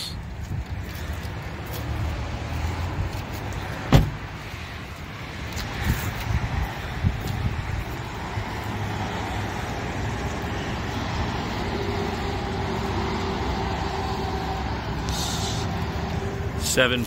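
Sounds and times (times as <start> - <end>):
truck engine idling: 9.6 - 17.0
short hiss: 15.1 - 15.7.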